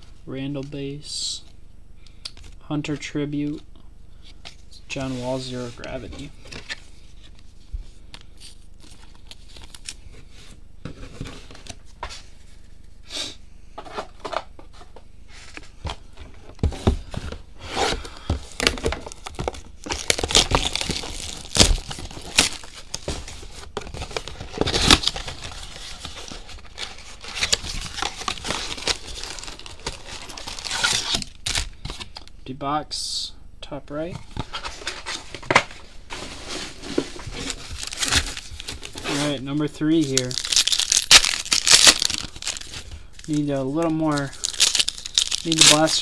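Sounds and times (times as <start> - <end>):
card packaging tearing and crinkling: 8.3 - 10.1, 16.8 - 32.3, 34.3 - 46.0.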